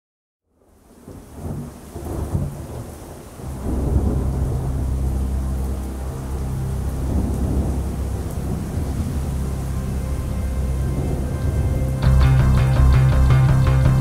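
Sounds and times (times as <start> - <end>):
rain: 0.4 - 14.0
rolling thunder: 1.0 - 12.4
deep steady tone: 3.4 - 14.0.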